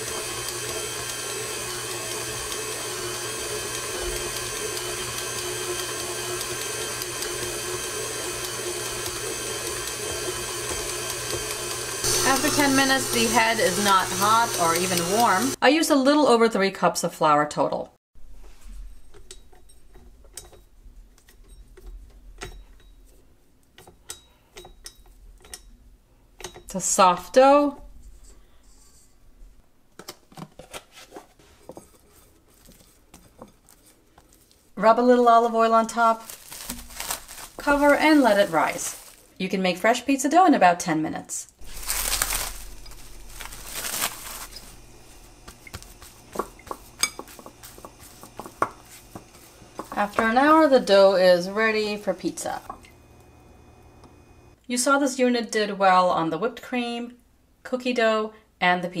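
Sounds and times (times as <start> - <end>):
soft rustling: 36.1 - 39.4, 41.6 - 50.2.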